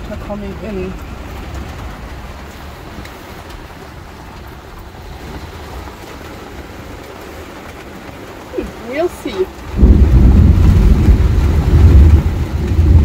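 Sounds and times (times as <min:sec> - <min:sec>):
heavy rain on vehicle roof: 0:00.0 - 0:13.0
low rumble: 0:09.5 - 0:13.0.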